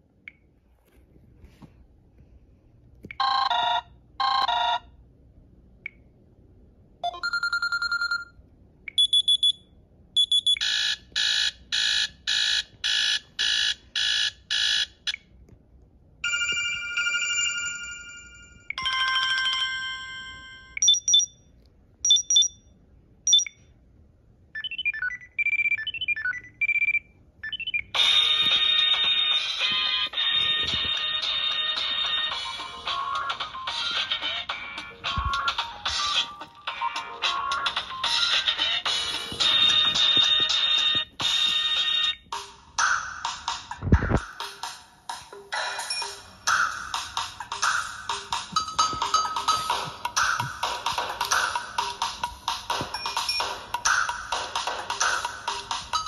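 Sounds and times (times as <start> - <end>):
phone alarm tones: 3.2 - 4.8, 7.0 - 8.3.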